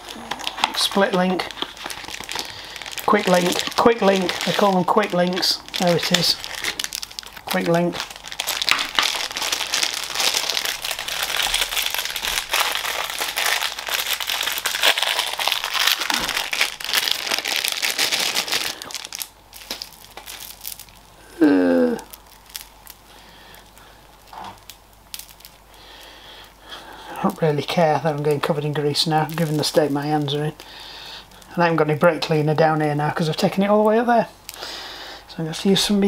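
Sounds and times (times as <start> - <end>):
crinkling and rustling: 0.0 - 21.1, 21.9 - 25.7, 27.2 - 30.7
person humming: 21.2 - 22.2.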